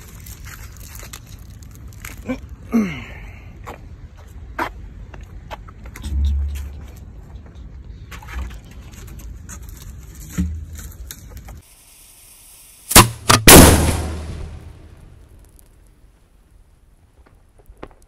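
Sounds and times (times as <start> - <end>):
firework shell blasts: 12.8 - 15.2.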